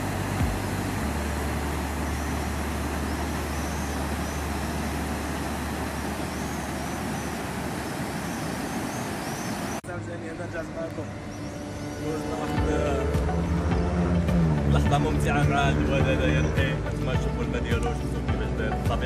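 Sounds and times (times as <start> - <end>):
river water rushing over weir: 0.0 - 9.8
road traffic rumble: 0.0 - 19.0.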